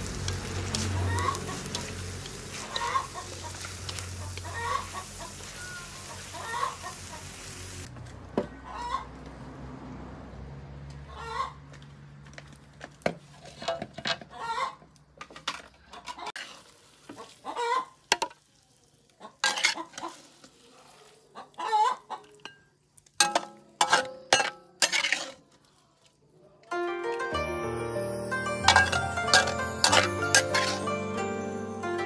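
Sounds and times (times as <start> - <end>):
metal spatula scraping a wok: 0.0 - 7.4, 15.5 - 18.4, 19.4 - 21.2, 23.2 - 25.8, 28.6 - 31.0
hens clucking: 0.7 - 7.6, 8.5 - 9.2, 11.0 - 11.8, 14.2 - 15.0, 17.1 - 18.0, 19.1 - 22.4.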